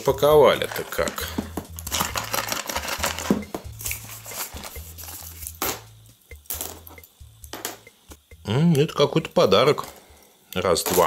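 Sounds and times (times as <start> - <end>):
background music with bass line: 0.0 - 8.8
packing tape tearing: 1.8 - 5.8.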